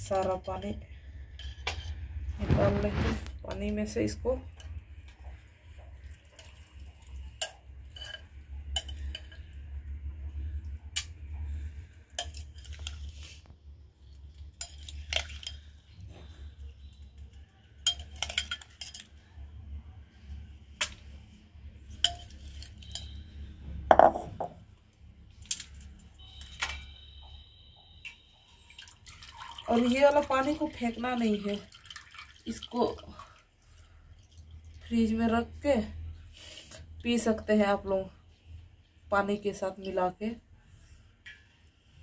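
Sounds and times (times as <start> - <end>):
spoon clinking against glass bowl: 17.8 - 19.2, 22.0 - 23.2.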